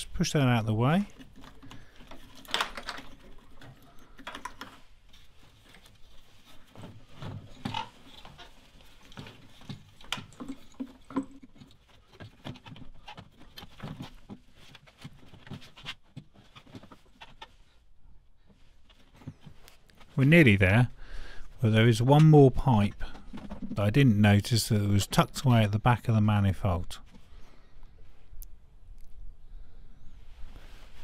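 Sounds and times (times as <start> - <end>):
plastic and rubber parts handled: 0.9 - 20.4, 21.5 - 24.1.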